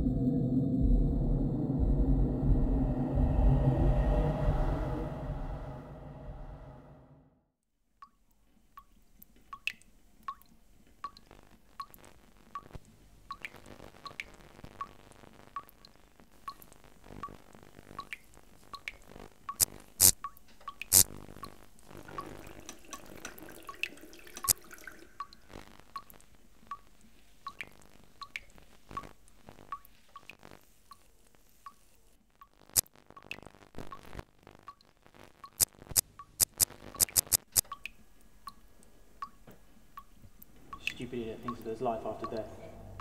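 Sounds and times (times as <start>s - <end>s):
faint steady drone: 0.0s - 7.4s.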